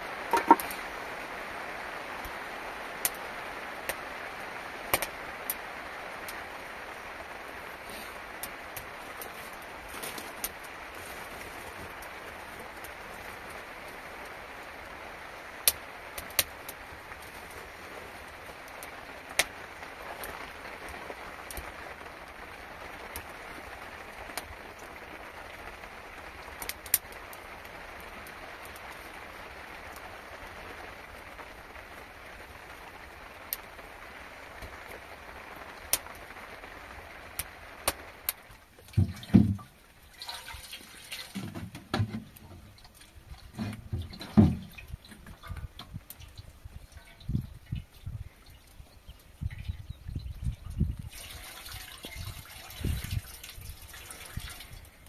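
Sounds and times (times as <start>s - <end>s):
steady rain: 0.0s - 55.0s
drops striking a hard surface: 0.3s - 0.7s
low irregular knocks: 43.5s - 46.0s.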